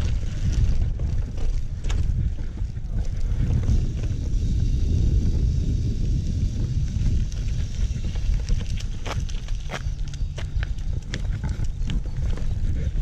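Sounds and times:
bicycle tyres on gravel: 0.0 - 13.0
wind buffeting microphone: 0.0 - 13.0.

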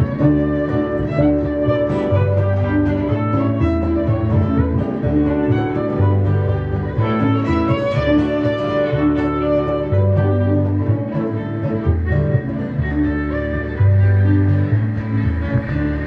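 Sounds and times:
acoustic guitar: 0.0 - 16.0
bowed fiddle: 0.0 - 16.0
harp: 0.0 - 16.0
upright bass notes: 0.0 - 16.0.

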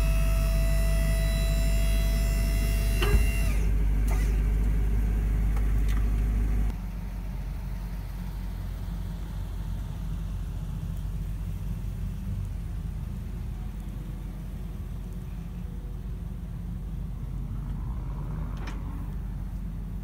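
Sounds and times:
hydraulic pump motor whining: 0.0 - 4.8
low rumble: 4.6 - 20.0.

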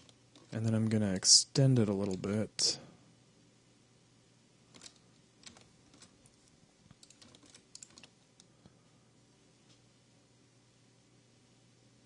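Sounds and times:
low steady hum: 0.0 - 12.0
keyboard and mouse clicking: 4.7 - 6.1, 6.9 - 8.5.

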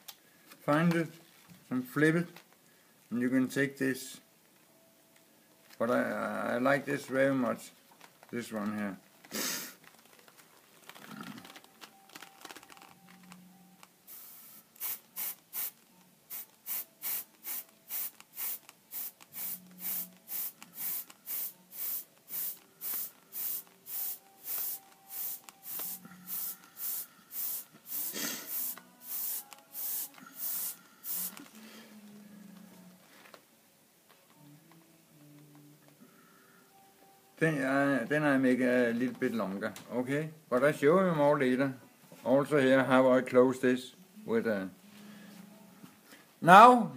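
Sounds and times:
airbrush spraying in hissing bursts: 14.1 - 31.4.

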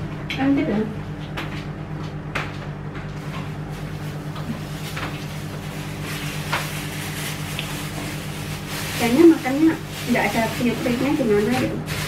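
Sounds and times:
steady low hum: 0.0 - 12.0
plastic bag rustling: 3.4 - 12.0.

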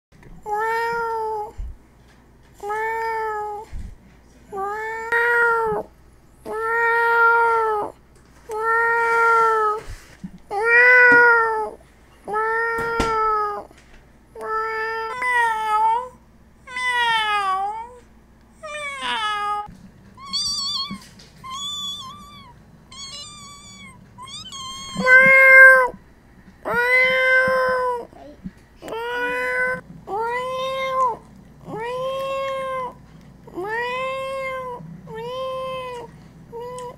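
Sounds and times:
cats meowing: 4.6 - 5.9, 10.5 - 13.7, 18.6 - 26.0, 26.7 - 28.0, 28.8 - 36.9.

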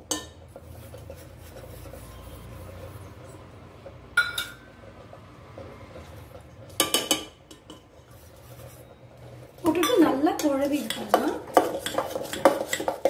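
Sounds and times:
steel utensils clinking against pot: 0.0 - 2.5, 4.2 - 4.7, 6.8 - 8.2, 9.6 - 13.0.

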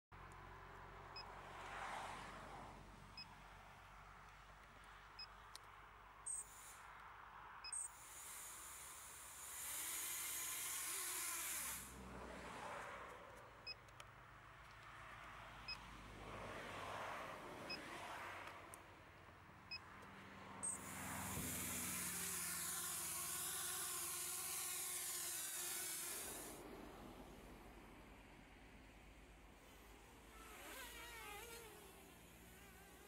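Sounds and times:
hiss: 8.0 - 12.0, 20.8 - 26.6.

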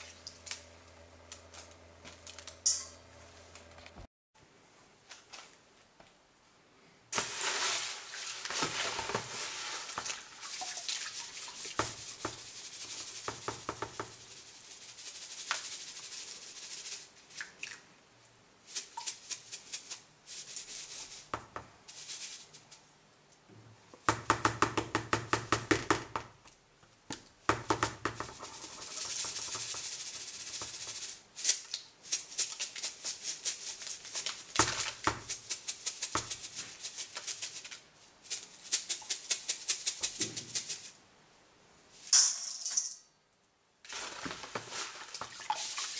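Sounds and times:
charcoal granules rattling in sieve: 7.1 - 17.2, 18.6 - 21.3, 28.2 - 41.0, 43.9 - 45.9.

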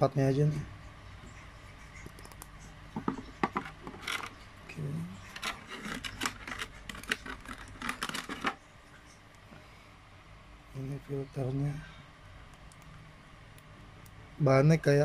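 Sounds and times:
scraping rustles: 5.2 - 9.2.

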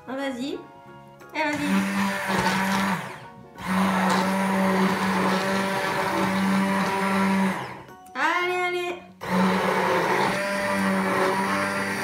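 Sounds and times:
immersion blender motor whine: 1.5 - 7.9, 9.2 - 12.0.

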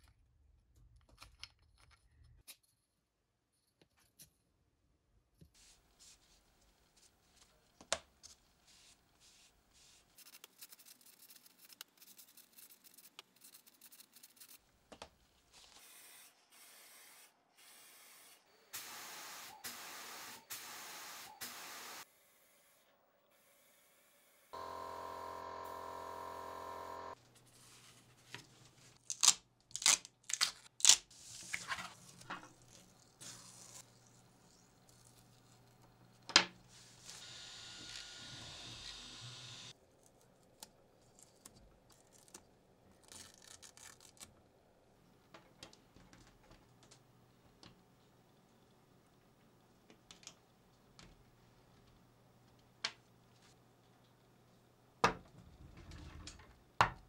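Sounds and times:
steady humming tone: 24.6 - 27.2
masking tape ripping off: 29.0 - 31.1, 43.0 - 44.3.

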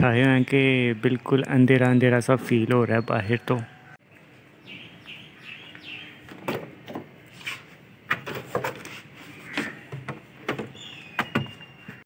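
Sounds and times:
plastic jugs knocking: 9.6 - 11.6.

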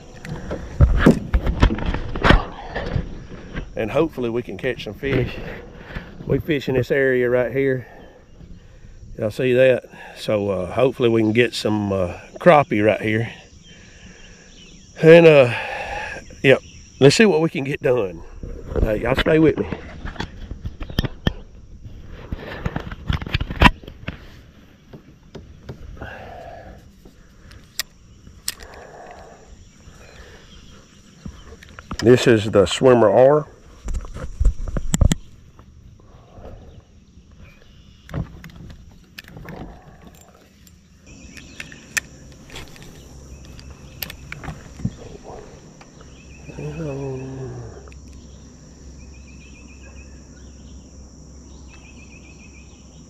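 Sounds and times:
insects droning: 0.0 - 53.0
faint rustle: 18.2 - 48.8
sharp clicks and knocks: 33.8 - 35.3.

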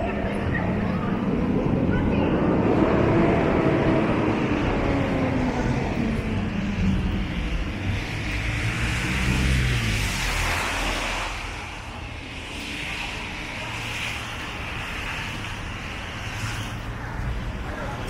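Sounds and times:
background traffic: 0.0 - 18.0
tyre hiss on wet road: 8.7 - 17.0.

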